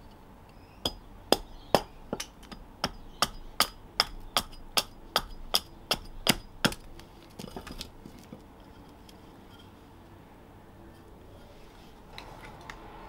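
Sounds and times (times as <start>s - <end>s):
split wood clattering: 5.9s - 9.1s.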